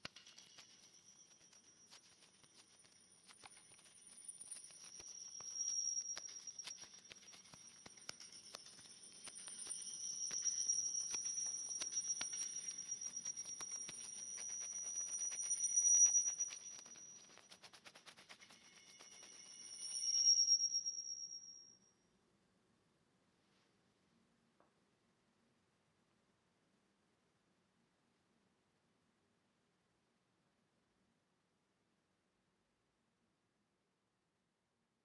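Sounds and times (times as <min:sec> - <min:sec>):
clicks and crackles: 0:00.0 - 0:19.6
high-pitched audio feedback tone: 0:00.1 - 0:21.8.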